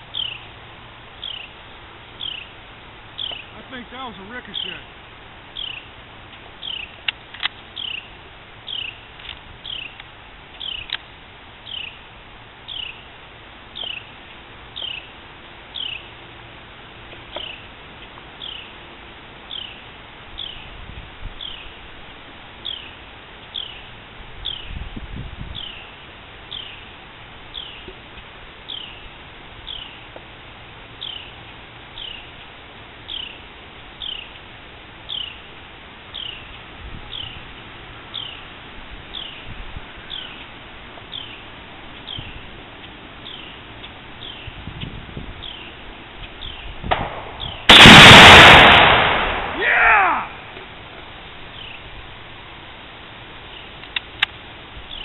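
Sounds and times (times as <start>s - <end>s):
bird chirping: 0.0s - 0.5s, 1.2s - 2.6s, 3.2s - 4.9s, 5.6s - 5.9s, 6.6s - 7.0s, 7.8s - 10.0s, 10.6s - 11.0s, 11.6s - 12.0s, 12.7s - 13.1s, 13.8s - 14.1s, 14.8s - 15.1s, 15.7s - 16.1s, 17.4s - 17.7s, 18.4s - 18.7s, 19.5s - 19.8s, 20.4s - 20.7s, 21.4s - 21.8s, 22.6s - 24.8s, 25.6s - 26.9s, 27.5s - 27.9s, 28.7s - 29.1s, 29.7s - 30.0s, 31.0s - 31.4s, 32.0s - 32.3s, 33.1s - 33.4s, 34.0s - 34.4s, 35.1s - 35.5s, 36.1s - 37.4s, 38.1s - 38.5s, 39.1s - 40.5s, 41.1s - 46.8s, 47.4s - 47.8s
sharp clicks: 7.0s - 7.6s.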